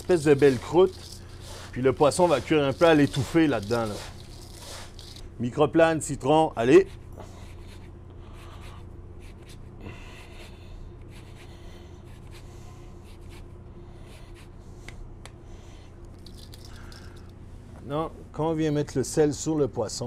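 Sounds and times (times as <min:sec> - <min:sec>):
zester scraping lemon rind: 0:00.0 - 0:05.3
steady low hum: 0:00.0 - 0:20.0.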